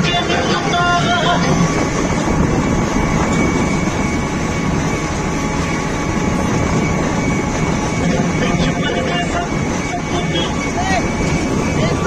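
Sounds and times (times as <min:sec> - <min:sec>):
combine harvester engine running: 0:00.0 - 0:12.0.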